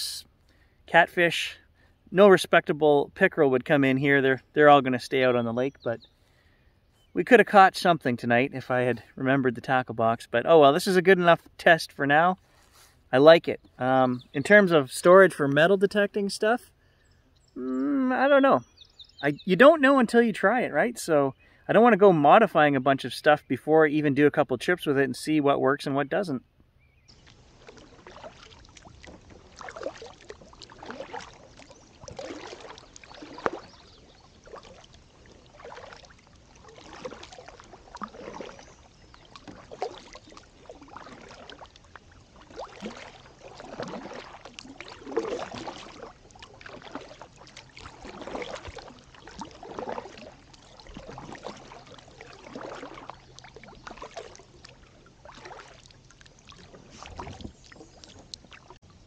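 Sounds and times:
paddle splashing in water: 26.7 - 59.0.

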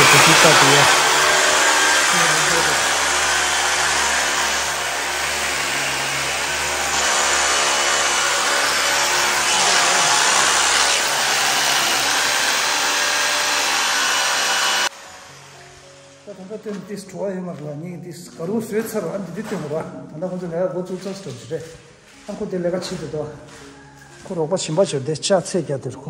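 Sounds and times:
power tool motor whirring: 0.0 - 16.2.

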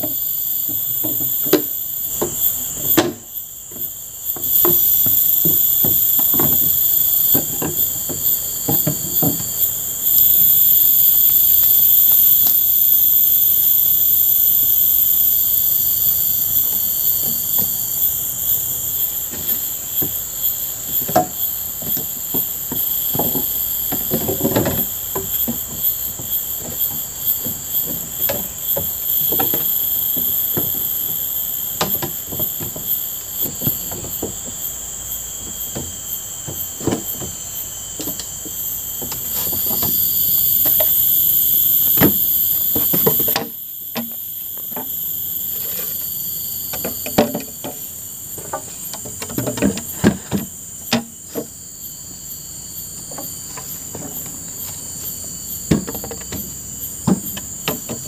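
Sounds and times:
bamboo poles knocking: 0.0 - 9.6, 19.3 - 44.9, 46.7 - 51.6, 53.0 - 58.0
insects droning: 0.0 - 58.0.

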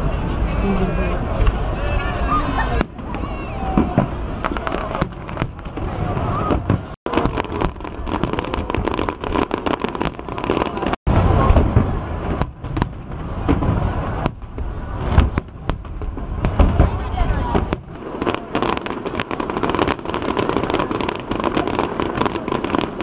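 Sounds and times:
faint crowd voices: 0.0 - 23.0
fireworks bangs and crackles: 0.0 - 23.0.

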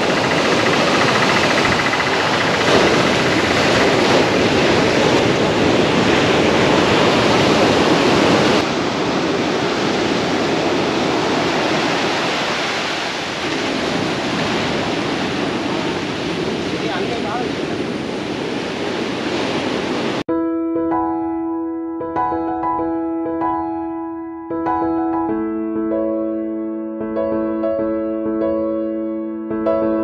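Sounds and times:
surf breaking on seawall: 0.0 - 20.2.

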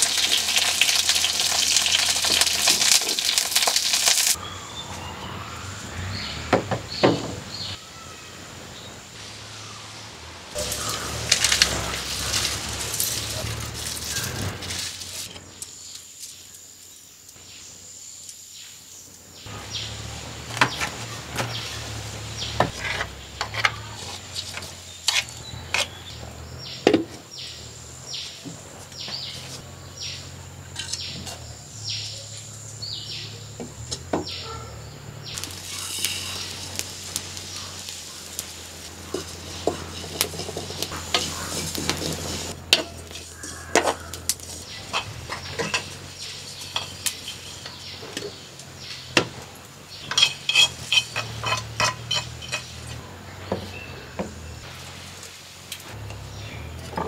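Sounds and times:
clay pots and utensils clinking: 44.8 - 48.4, 50.0 - 53.0.

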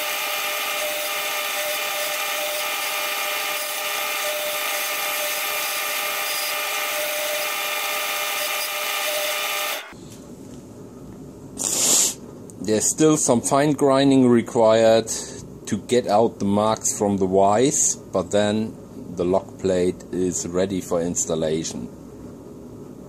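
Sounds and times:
drill press motor whine: 0.0 - 10.0.

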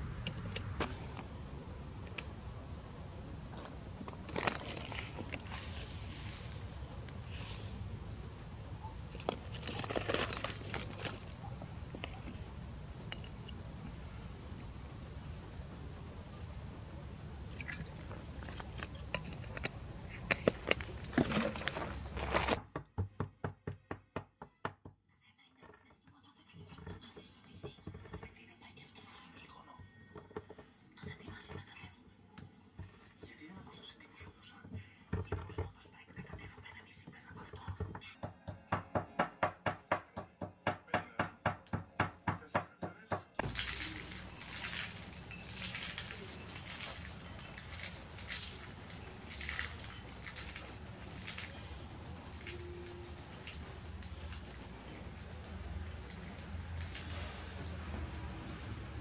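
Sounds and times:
low outdoor rumble: 0.0 - 22.6
herb stems crackling and snapping: 3.5 - 12.4, 43.4 - 58.3
pestle grinding in glass cup: 3.5 - 15.5, 16.2 - 22.6, 43.4 - 58.8
steady hiss: 5.0 - 9.2.

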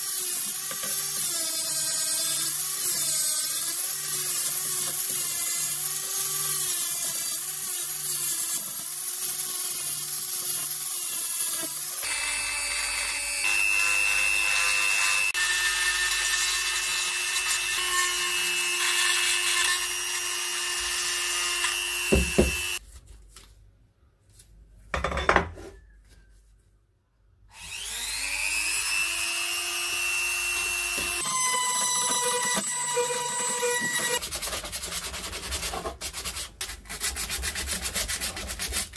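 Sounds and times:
angle grinder grinding metal: 0.0 - 22.8, 27.6 - 34.2
rotary tool high whine: 12.0 - 22.8, 27.5 - 34.2.

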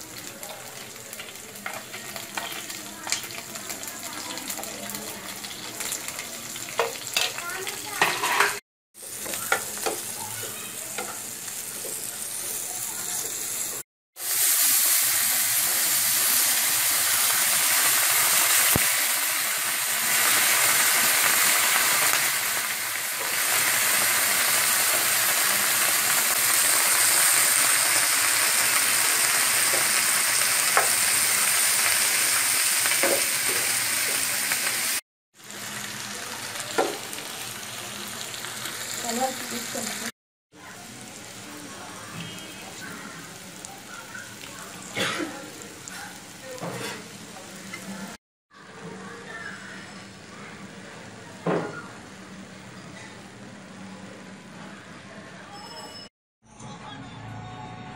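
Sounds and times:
loud steady sizzle: 0.0 - 8.1, 9.0 - 48.2
onions frying in oil: 0.0 - 48.2
spatula scraping pan: 8.0 - 12.5, 46.7 - 47.8.

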